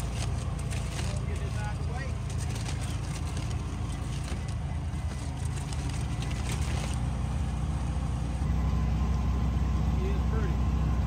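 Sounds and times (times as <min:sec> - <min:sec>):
light rattles and clicks: 0:00.0 - 0:07.1
vehicle engine humming: 0:00.0 - 0:11.0.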